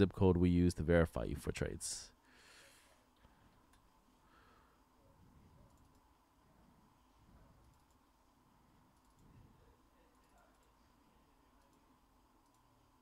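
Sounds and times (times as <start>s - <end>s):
faint computer clicks: 5.6s - 6.1s, 7.6s - 8.1s, 8.9s - 9.4s, 10.0s - 10.9s, 11.5s - 12.7s.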